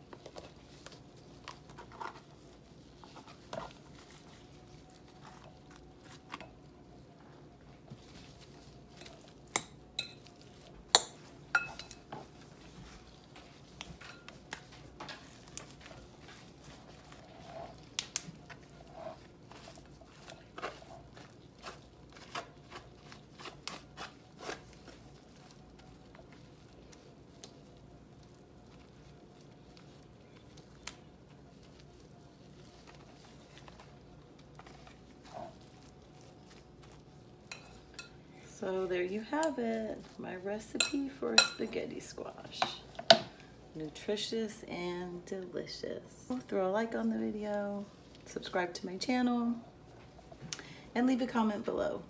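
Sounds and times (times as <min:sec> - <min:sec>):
fork scraping squash: 0:15.0 - 0:25.1.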